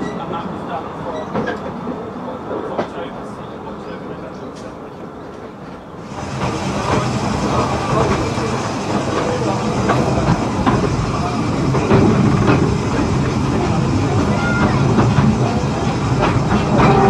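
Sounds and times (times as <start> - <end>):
running train noise: 0.0 - 17.0
wheels clicking over rail joints: 6.1 - 17.0.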